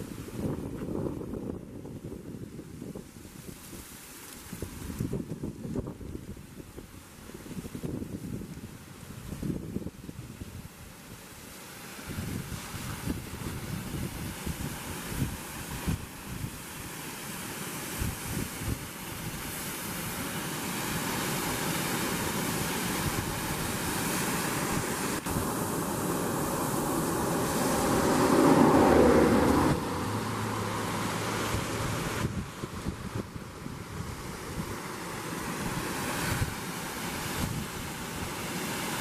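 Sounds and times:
wind buffeting microphone: 0:00.0 - 0:11.2, 0:12.1 - 0:16.9, 0:17.9 - 0:20.2, 0:22.0 - 0:39.0
waterfall roaring: 0:11.2 - 0:39.0.

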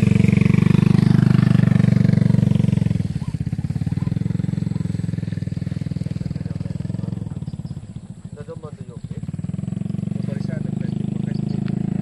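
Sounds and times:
motorcycle engine passing by: 0:00.0 - 0:12.0.

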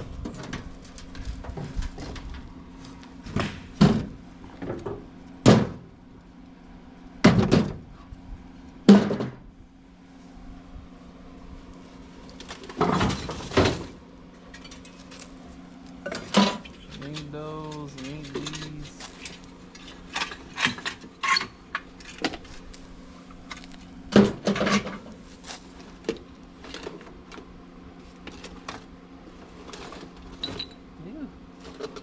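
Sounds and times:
metal car parts clanking: 0:12.4 - 0:15.3, 0:16.0 - 0:22.5.

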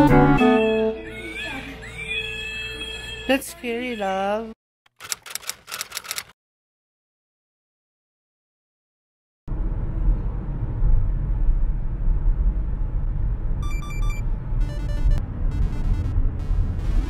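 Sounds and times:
car road and engine rumble: 0:09.5 - 0:17.0
electronic music: 0:13.6 - 0:17.0.

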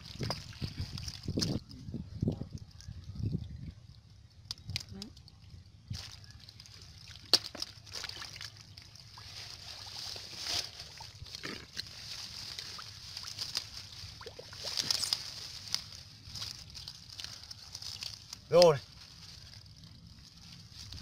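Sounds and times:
hands splashing in muddy water: 0:06.8 - 0:15.4.

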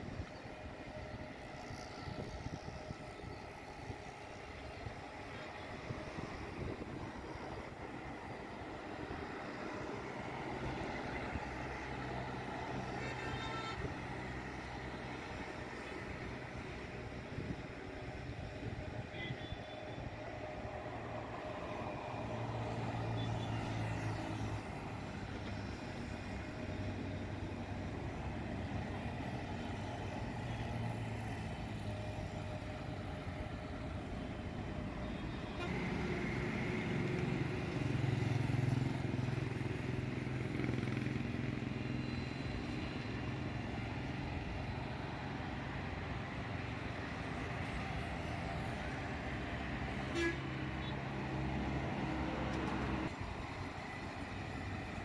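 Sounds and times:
road traffic passing: 0:00.0 - 0:55.0
motorcycles passing: 0:35.5 - 0:44.3.

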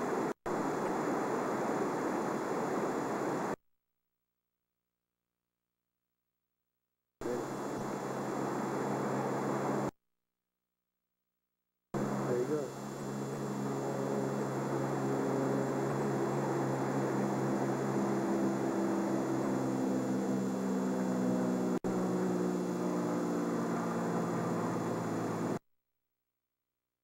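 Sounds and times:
engine droning: 0:07.2 - 0:09.9, 0:12.0 - 0:25.6.

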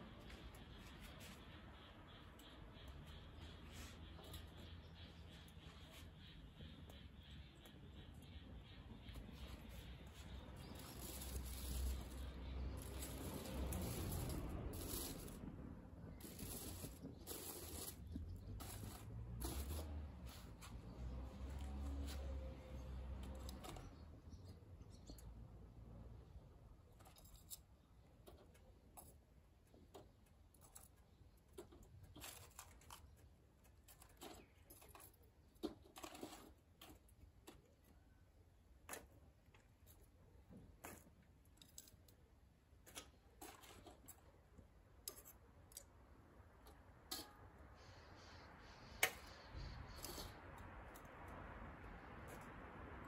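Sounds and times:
charcoal crackling and popping: 0:10.6 - 0:20.4.

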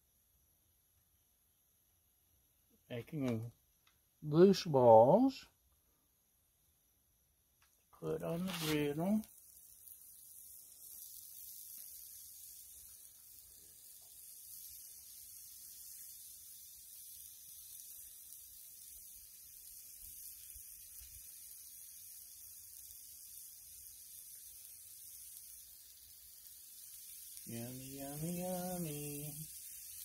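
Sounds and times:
meat sizzling on griddle: 0:08.0 - 0:30.0.

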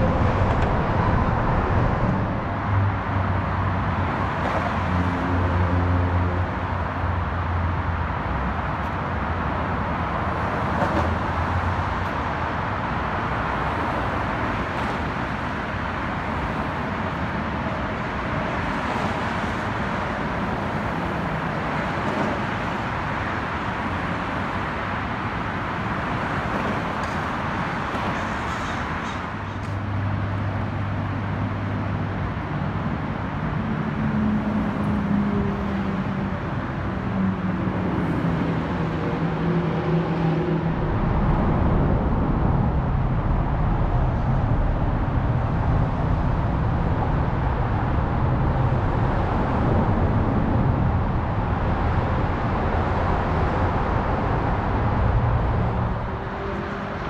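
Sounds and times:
heavy low rumble: 0:00.0 - 0:03.7, 0:40.2 - 0:57.0
passing vehicles: 0:00.0 - 0:57.0.

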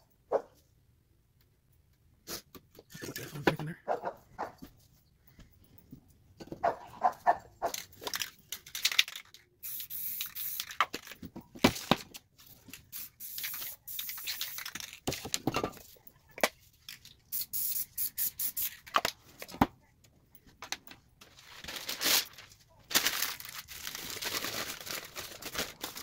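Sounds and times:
spray paint can hissing: 0:09.1 - 0:11.1, 0:12.7 - 0:15.0, 0:17.3 - 0:19.0.

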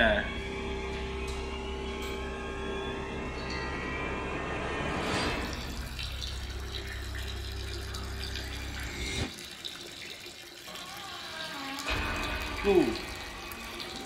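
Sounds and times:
low steady drone: 0:00.0 - 0:09.3
water splashing in toilet: 0:05.3 - 0:14.0.

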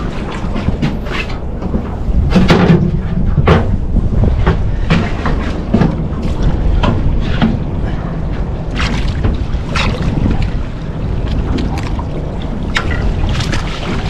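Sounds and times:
wind and sea rumble: 0:00.0 - 0:14.0
knocks on boat deck: 0:01.6 - 0:06.2.

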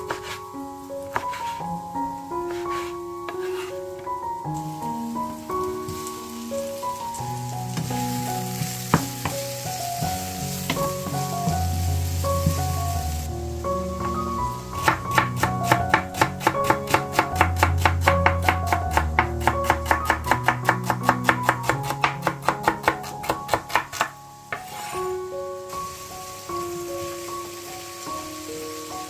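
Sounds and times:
background music: 0:00.0 - 0:29.0
knife chopping on wooden board: 0:00.1 - 0:00.4, 0:01.1 - 0:01.6, 0:02.5 - 0:03.7, 0:14.8 - 0:24.9.

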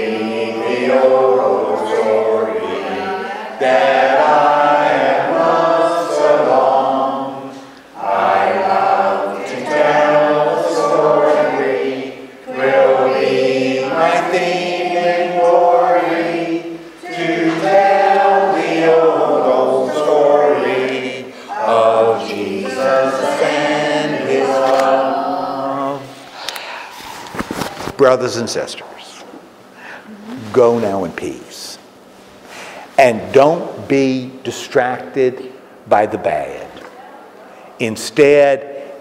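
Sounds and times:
congregation singing a hymn: 0:00.0 - 0:27.5.

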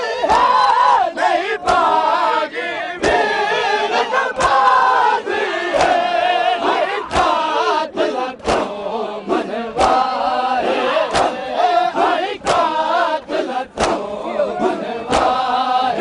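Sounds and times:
men chanting together: 0:00.0 - 0:16.0
chest slapping in unison: 0:03.0 - 0:03.3, 0:04.3 - 0:04.7, 0:05.7 - 0:07.4, 0:08.4 - 0:08.8, 0:09.8 - 0:10.1, 0:11.0 - 0:11.5, 0:12.4 - 0:12.8, 0:13.7 - 0:14.1, 0:15.1 - 0:15.4.

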